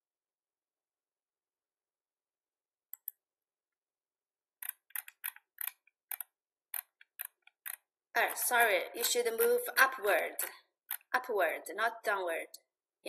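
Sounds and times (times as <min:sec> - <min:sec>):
computer mouse clicking: 0:02.9 - 0:03.2, 0:04.6 - 0:09.6, 0:10.4 - 0:11.1.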